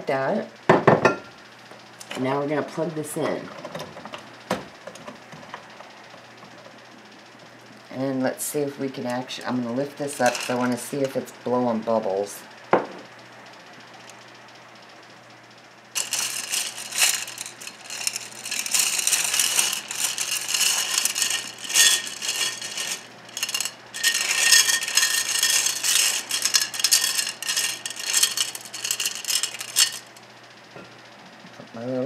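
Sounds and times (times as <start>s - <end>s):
glass gems clinking in water: 16.0s - 30.1s.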